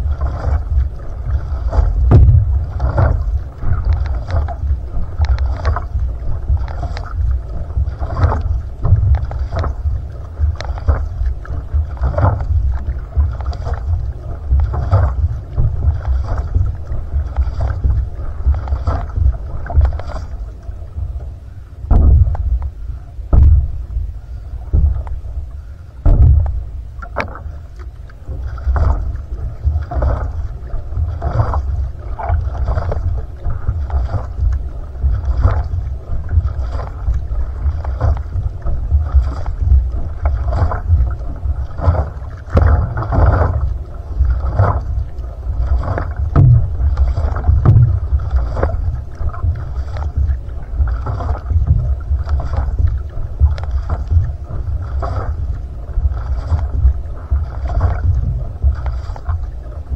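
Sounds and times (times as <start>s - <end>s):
paddle splashing into water: 0.0s - 59.9s
water rumbling along hull: 0.0s - 59.9s.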